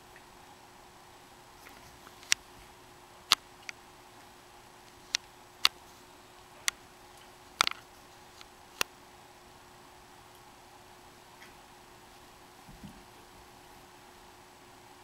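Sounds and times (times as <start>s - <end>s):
faint steady hum: 0.0s - 15.0s
sharp clicks: 4.8s - 5.8s, 6.6s - 8.9s.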